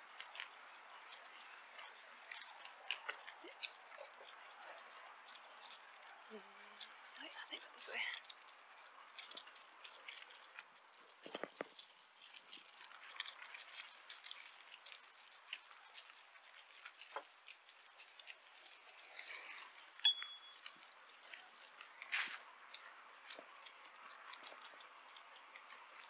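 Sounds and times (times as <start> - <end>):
bicycle clicks and rattles: 0.0 - 7.2, 8.2 - 26.0
short high tone: 20.1 - 20.6.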